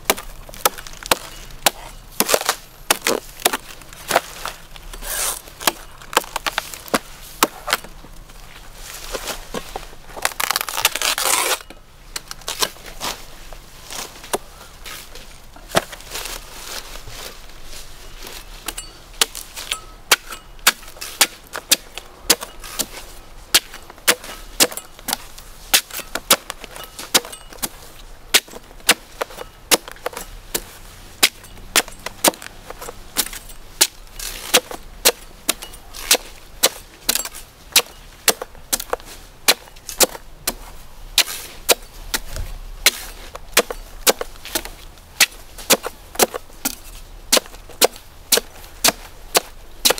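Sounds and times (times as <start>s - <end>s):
blade chopping coconuts: 0.1s - 4.3s, 18.7s - 40.6s, 41.2s - 49.9s.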